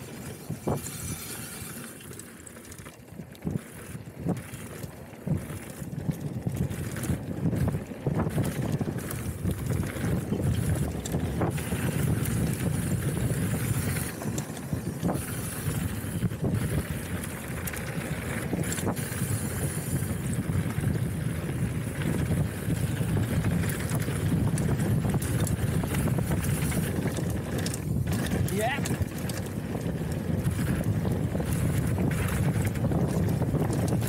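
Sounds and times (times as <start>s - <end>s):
wind on microphone: 0.0s - 1.6s, 3.4s - 34.0s
bike tyres rumbling on rough trail: 0.0s - 34.0s
bike knocks and rattles: 2.6s - 34.0s.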